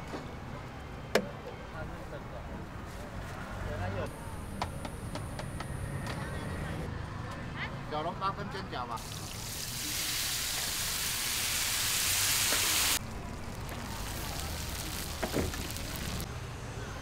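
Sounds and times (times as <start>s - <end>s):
water sizzling in hot pan: 9.0s - 16.3s.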